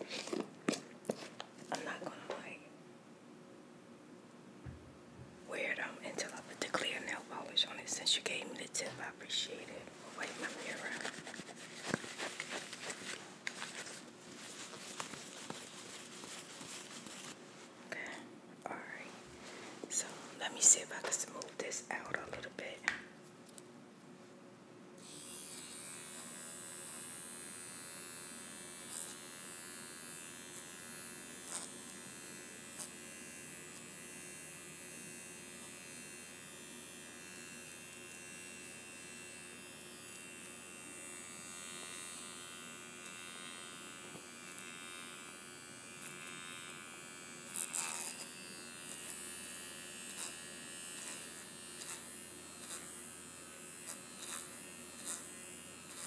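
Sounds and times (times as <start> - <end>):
facial roller buzzing: 10.3 - 17.4, 25.0 - 56.0.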